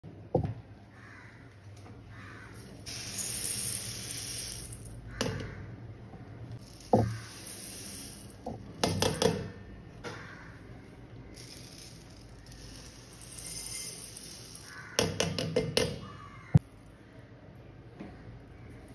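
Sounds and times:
grains poured into metal vessel: 2.6 - 4.9, 6.6 - 8.4, 11.4 - 14.9.

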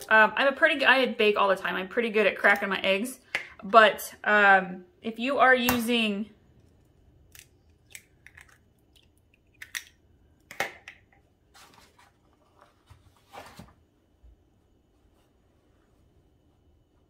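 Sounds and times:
eggshells cracking: 6.6 - 11.0.

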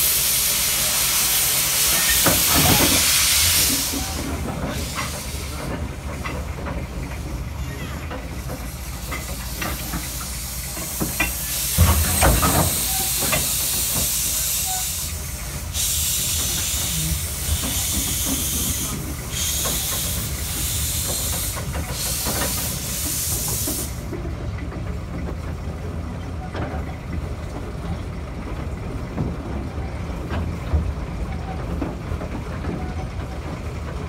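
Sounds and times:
steam hissing loudly: 0.0 - 6.2, 8.4 - 24.1
locomotive engine running: 0.0 - 34.0.

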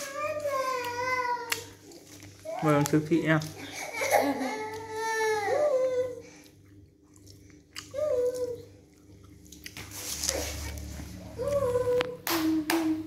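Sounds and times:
young child whining: 3.8 - 6.2, 7.9 - 8.7, 11.2 - 12.8.

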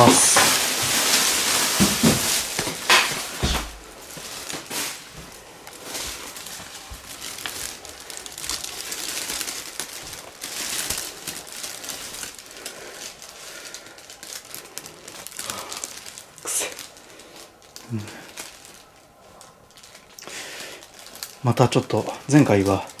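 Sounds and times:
bag rustling and crinkling: 0.0 - 23.0
handling knocks: 1.8 - 3.8
footsteps on wooden floor: 1.8 - 4.3.

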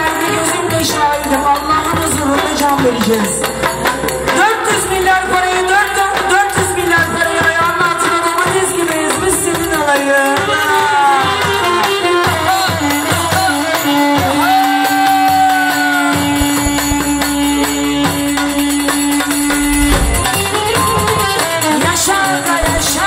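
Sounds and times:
woman singing into a microphone: 0.0 - 18.1, 19.7 - 23.0
band playing dance music: 19.5 - 20.7.

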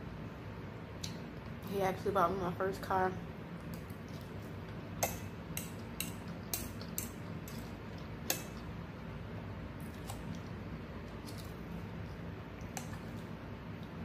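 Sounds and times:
steady low hum: 0.0 - 14.0
cutlery clicking against a dish: 5.0 - 7.7.

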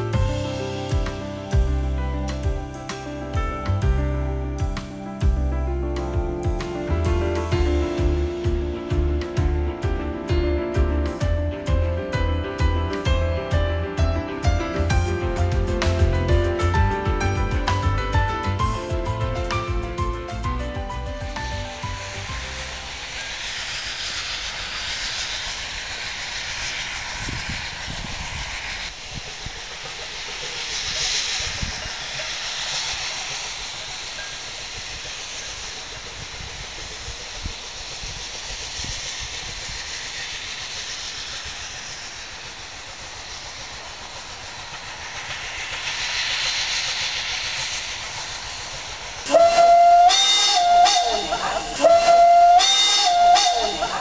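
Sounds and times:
steam locomotive hissing: 0.0 - 54.0
steam whistle: 49.2 - 54.0.

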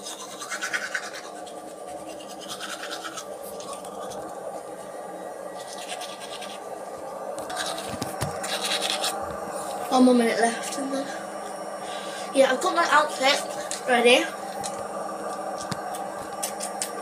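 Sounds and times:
toothbrush scrubbing teeth: 0.0 - 4.4, 5.6 - 6.6, 7.4 - 9.7, 16.4 - 16.9.

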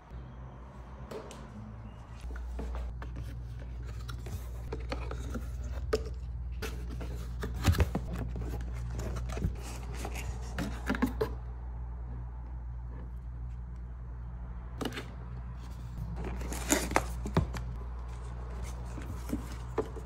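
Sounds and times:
steady low hum: 0.0 - 20.0
cardboard rustling and tapping: 2.5 - 11.4, 18.6 - 20.0.

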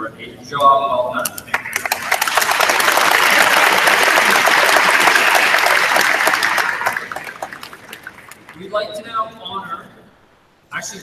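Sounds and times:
large audience applauding: 1.5 - 8.7.

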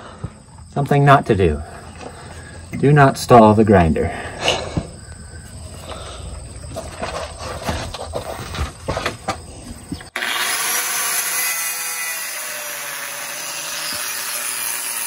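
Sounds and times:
angle grinder cutting metal pipe: 10.1 - 15.0.

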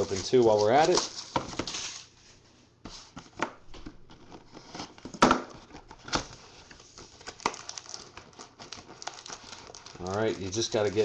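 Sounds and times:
cardboard tearing and crinkling: 0.0 - 2.1, 4.1 - 11.0.

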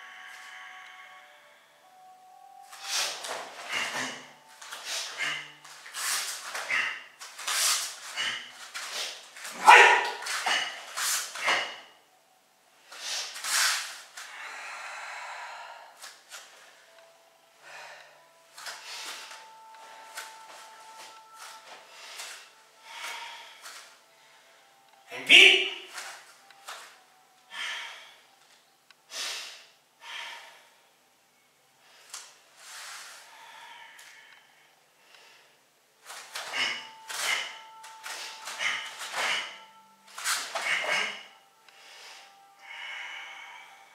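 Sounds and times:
person breathing forcefully: 2.8 - 11.8, 12.9 - 16.2, 21.8 - 24.5, 27.5 - 28.3, 36.2 - 39.8
person shouting: 9.6 - 10.2, 25.1 - 25.9.

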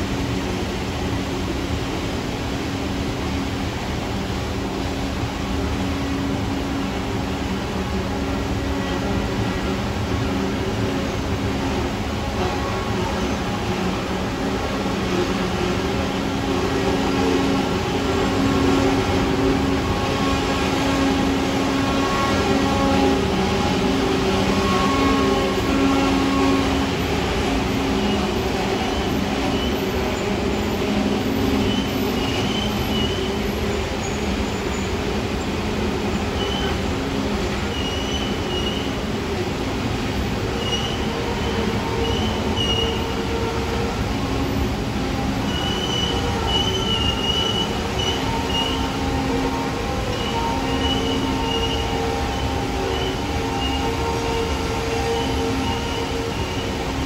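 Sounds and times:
train cars rumbling past: 0.0 - 57.0
wheel squeals: 37.7 - 39.0, 40.6 - 41.1, 42.0 - 43.0, 50.1 - 54.0.

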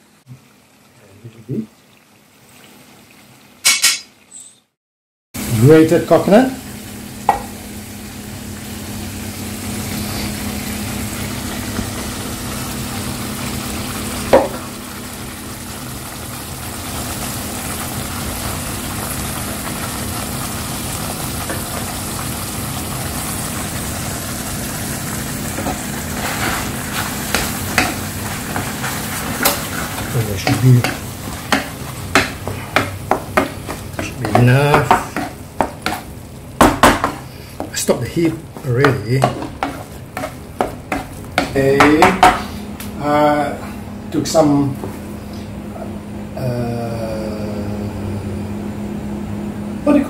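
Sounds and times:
sauce simmering and sizzling: 5.4 - 42.8
spatula scraping pan: 25.5 - 42.7.

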